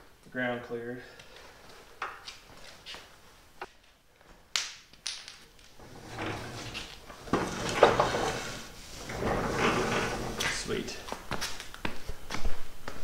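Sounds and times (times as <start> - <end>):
stand rolling on concrete: 5.8 - 11.0.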